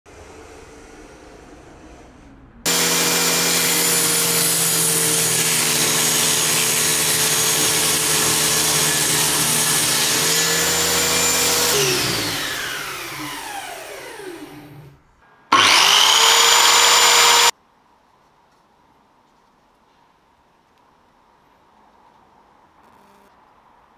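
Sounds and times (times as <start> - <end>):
circular saw cutting board: 0.1 - 17.5.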